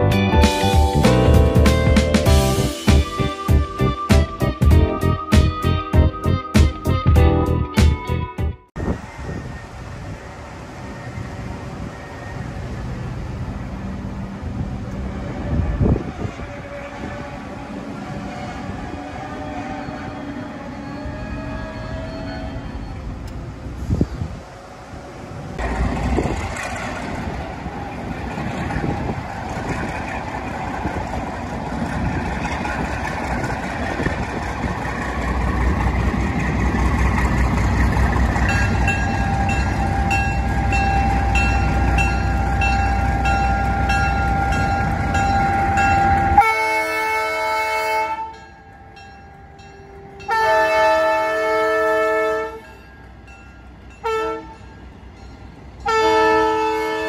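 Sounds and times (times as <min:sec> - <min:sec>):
diesel locomotive rumble: 0:00.0 - 0:57.0
train air horn blasts: 0:15.1 - 0:22.6, 0:45.6 - 0:48.5, 0:49.8 - 0:52.7, 0:54.0 - 0:54.6, 0:55.8 - 0:57.0.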